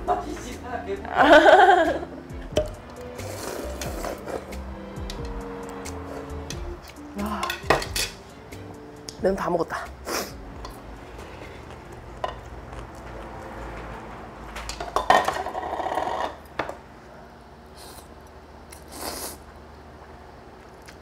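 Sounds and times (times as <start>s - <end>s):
slurping noodles: 3.1s - 4.6s, 18.7s - 19.4s
chopsticks clattering on ceramic bowls: 6.3s - 8.2s.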